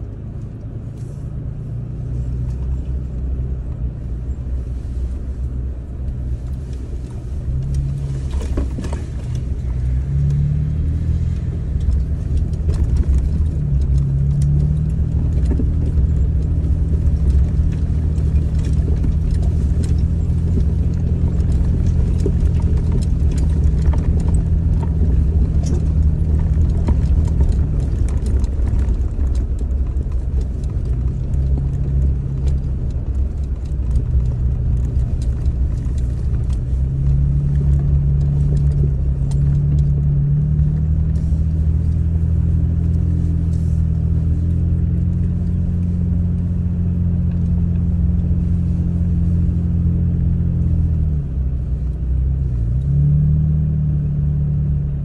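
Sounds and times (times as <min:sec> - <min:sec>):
tyres on dirt trail: 0:00.0 - 0:55.0
vehicle engine rumbling: 0:00.0 - 0:55.0
clicks and rattles: 0:06.5 - 0:48.4.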